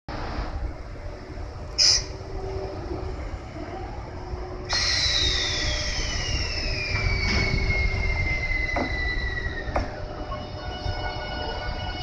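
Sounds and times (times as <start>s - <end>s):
train low rumble: 0.1s - 12.0s
whine sliding down in pitch: 2.5s - 10.4s.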